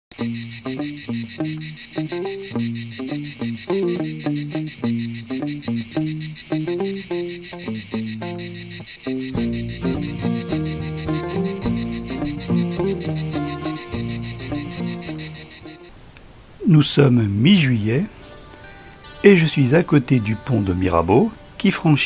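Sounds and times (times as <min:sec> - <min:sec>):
insects chirring: 0:00.1 - 0:15.9.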